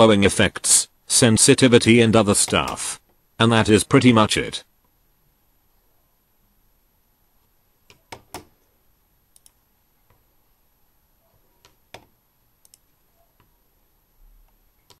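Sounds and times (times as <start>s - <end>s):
computer mouse clicks: 9.3s - 10.2s, 11.6s - 13.5s.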